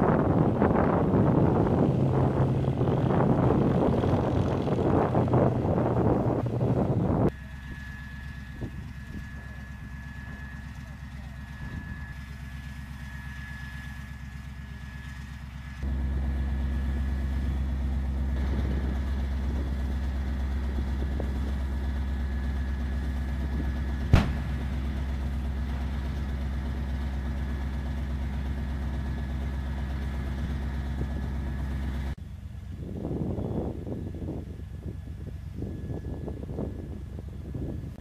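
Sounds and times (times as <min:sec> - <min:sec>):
diesel engine idling: 0:00.0 - 0:38.0
faint high whine: 0:07.2 - 0:29.8.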